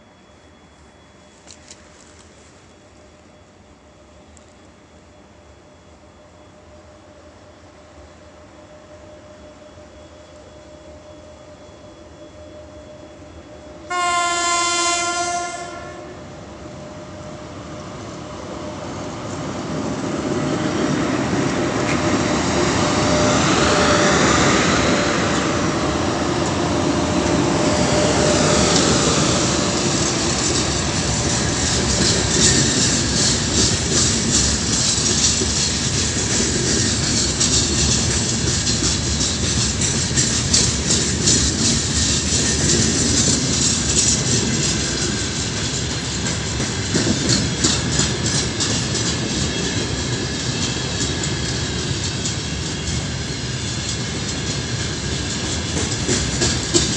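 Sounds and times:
electric locomotive whine: 0.0s - 56.9s
wheels clattering over rail joints: 25.2s - 56.9s.

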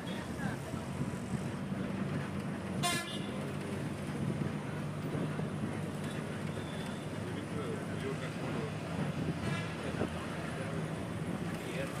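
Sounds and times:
bus engine running: 0.0s - 12.0s
high bus horn toot: 2.8s - 3.4s.

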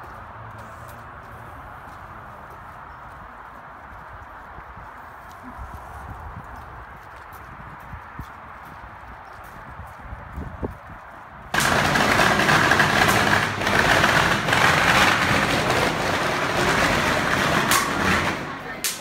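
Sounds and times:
firecrackers popping: 11.5s - 19.0s.

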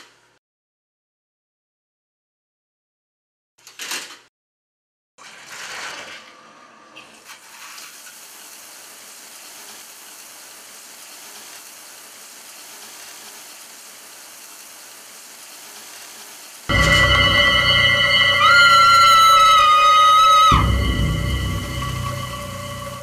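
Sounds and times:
shower spray hissing: 7.8s - 16.7s.

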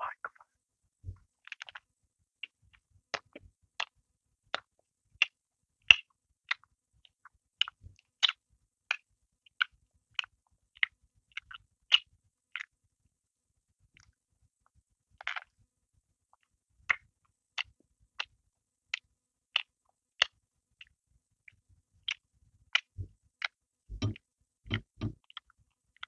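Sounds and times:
chewing bread mouth sounds: 5.9s - 12.7s, 18.9s - 26.0s.

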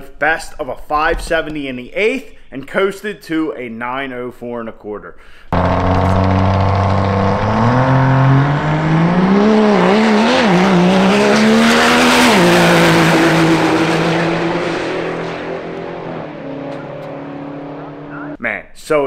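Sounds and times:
diesel truck engine at full throttle: 5.5s - 18.4s.

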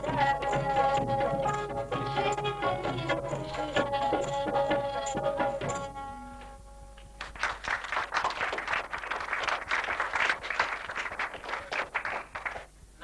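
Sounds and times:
audience applauding: 7.2s - 12.7s.

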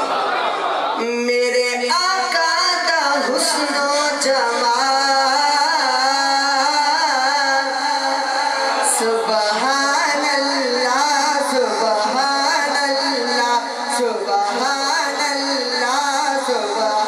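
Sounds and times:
young man singing devotional poem: 1.0s - 17.0s.

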